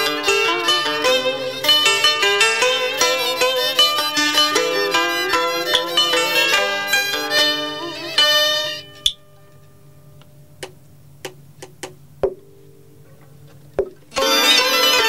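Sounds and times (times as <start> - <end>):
plucked and bowed strings ensemble: 0.0 - 9.6, 13.1 - 15.0.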